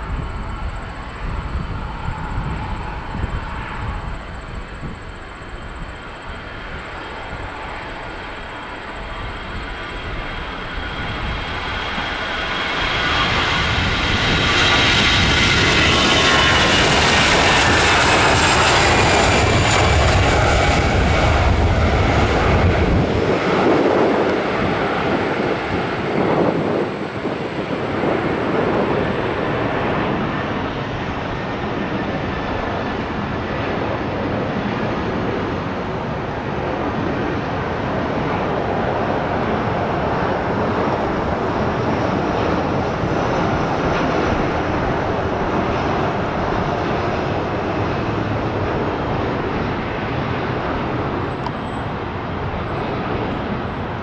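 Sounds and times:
jet plane passing close by: 0.0 - 54.0.

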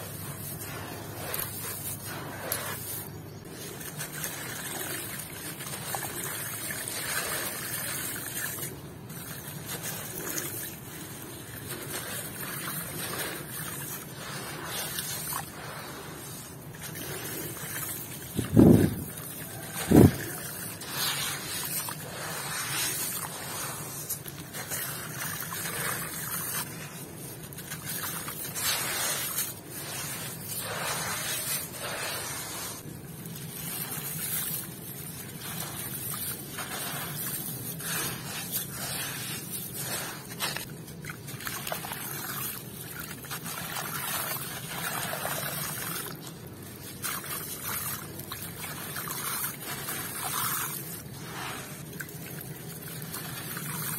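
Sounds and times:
gritty sand mix trickling into water: 0.0 - 53.9.

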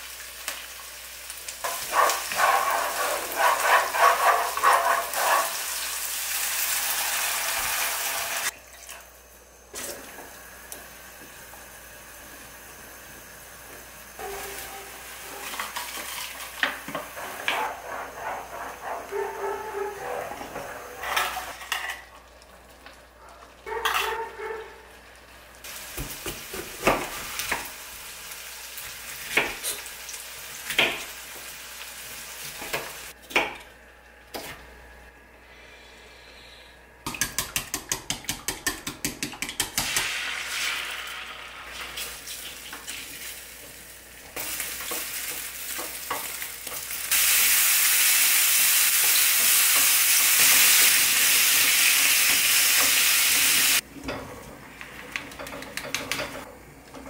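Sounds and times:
mushrooms sizzling in hot pan: 0.0 - 8.5, 25.6 - 33.1, 39.8 - 53.8
spatula stirring in frying pan: 1.6 - 5.8, 15.3 - 21.7.

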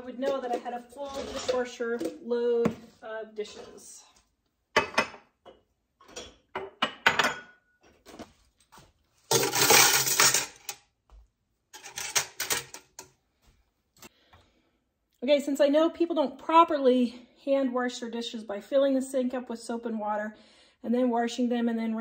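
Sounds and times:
dishes and glasses clinking: 4.8 - 8.0
cutlery clattering into metal bucket: 9.3 - 10.8, 11.8 - 13.1.

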